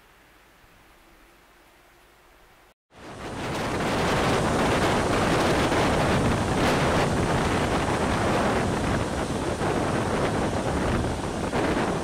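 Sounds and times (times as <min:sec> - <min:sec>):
wind rushing past microphone: 0:02.9 - 0:12.0
train carriage rumbling on rails: 0:03.0 - 0:12.0.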